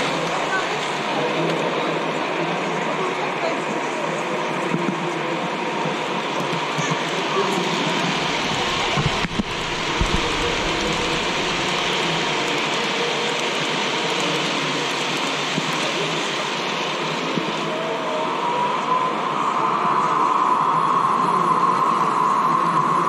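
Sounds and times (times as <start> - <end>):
model trains rolling: 6.0 - 19.0.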